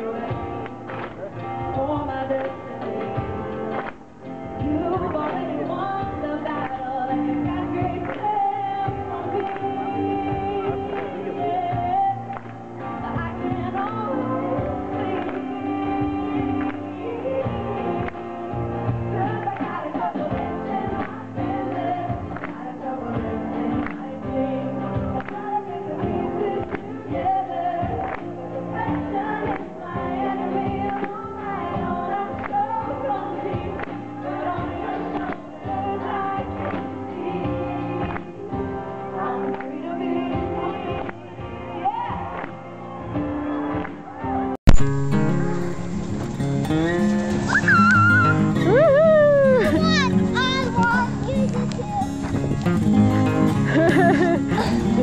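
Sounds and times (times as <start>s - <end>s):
audience clapping along: 0.0s - 24.0s, 24.9s - 27.2s, 27.8s - 44.5s, 47.5s - 55.0s
woman singing: 0.0s - 42.5s, 47.8s - 52.1s, 53.6s - 55.0s
acoustic guitar: 0.0s - 55.0s
acoustic guitar strumming: 44.7s - 55.0s.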